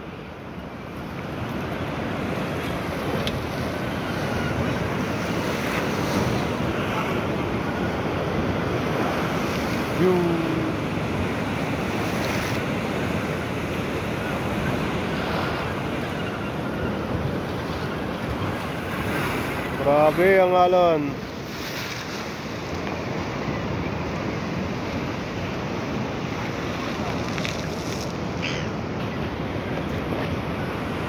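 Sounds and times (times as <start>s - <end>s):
ocean swell breaking on rocks: 0.0s - 31.0s.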